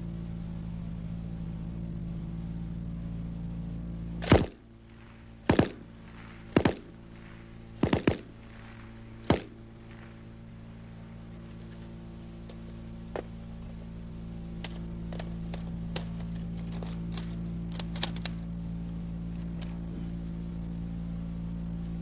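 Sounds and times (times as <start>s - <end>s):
steady hum: 0.0s - 22.0s
automatic rifle firing bursts: 4.2s - 10.7s.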